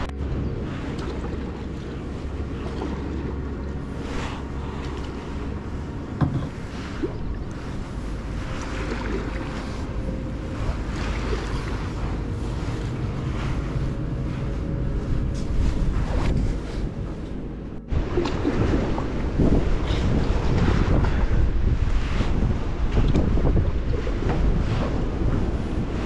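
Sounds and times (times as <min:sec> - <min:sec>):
wind rumble on microphone: 0:00.0 - 0:26.0
paddle strokes splashing water: 0:00.6 - 0:17.2.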